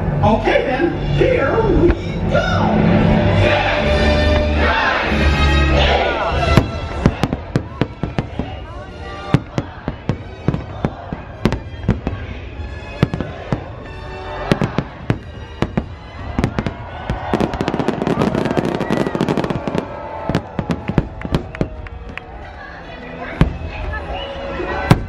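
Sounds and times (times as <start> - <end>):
show music: 0.0 - 25.0
fireworks bangs and crackling: 6.3 - 24.1, 24.7 - 25.0.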